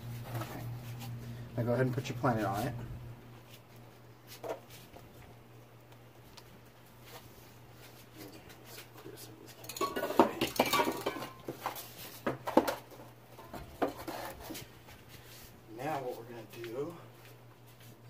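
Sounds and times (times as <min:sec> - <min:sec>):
spray cans clinking: 0:09.6 - 0:12.8.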